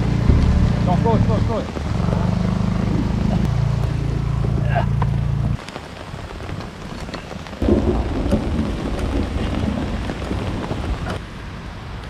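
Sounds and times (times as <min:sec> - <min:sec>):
low rumble of thunder: 0:00.0 - 0:04.6, 0:07.6 - 0:11.2
rain falling: 0:00.0 - 0:12.0.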